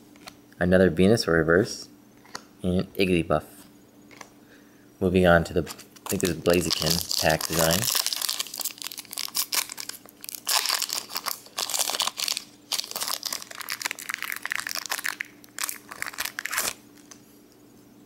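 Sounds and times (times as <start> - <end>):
foil wrapper crinkling and tearing: 5.7 - 17.2.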